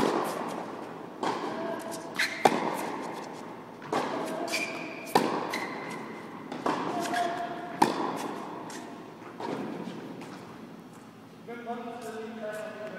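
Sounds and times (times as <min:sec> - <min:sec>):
tennis ball struck by rackets: 0:00.0 - 0:08.8
tennis ball bouncing: 0:00.0 - 0:10.5.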